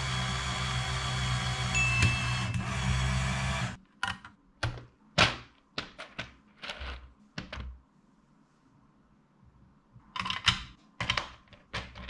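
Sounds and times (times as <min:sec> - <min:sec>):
toy motor humming: 0:00.0 - 0:03.8.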